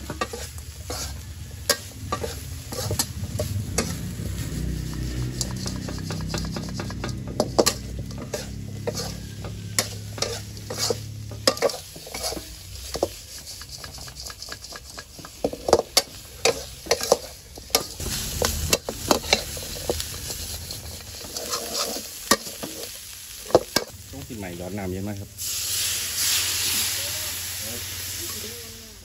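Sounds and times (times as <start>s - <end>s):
metal spatula scraping a wok: 0.0s - 24.0s
food sizzling: 0.0s - 29.0s
low hum: 1.3s - 11.4s.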